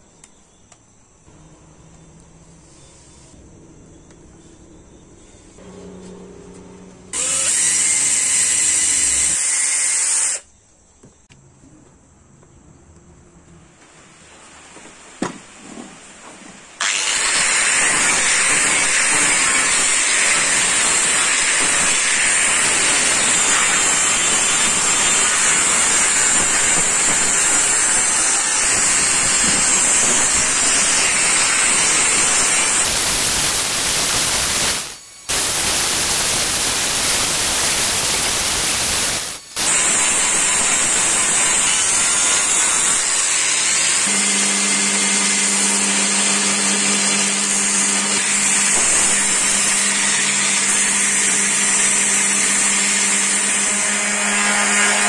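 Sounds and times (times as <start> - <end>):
angle grinder grinding metal: 5.6 - 10.5, 16.8 - 55.0
cordless drill running: 7.1 - 10.5, 16.8 - 54.8.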